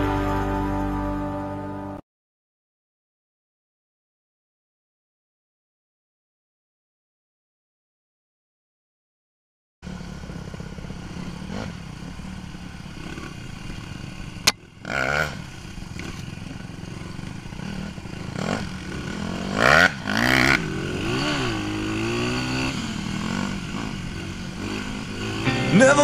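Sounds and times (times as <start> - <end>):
dirt bike engine revving: 9.9 - 26.0.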